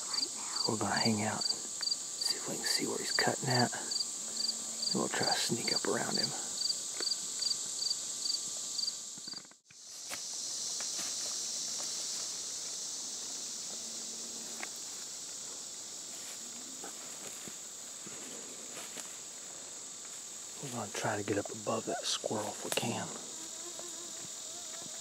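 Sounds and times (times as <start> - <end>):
insect chirping: 0.0 - 25.0
insect chorus drone: 0.0 - 25.0
footsteps in dry leaves: 9.8 - 13.5, 16.0 - 19.4.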